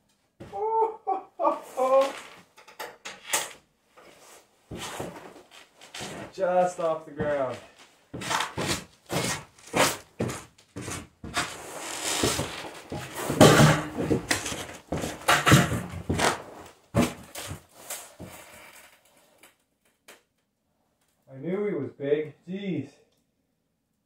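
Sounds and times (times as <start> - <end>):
clothing rustling: 3.9 - 18.6
knocks and thumps: 12.2 - 17.6.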